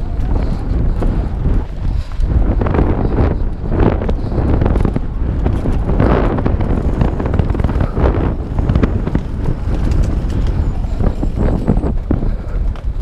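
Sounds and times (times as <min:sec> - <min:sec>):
bike rattling: 0:00.0 - 0:13.0
tyres over dirt and rocks: 0:00.0 - 0:13.0
wind buffeting microphone: 0:00.0 - 0:13.0.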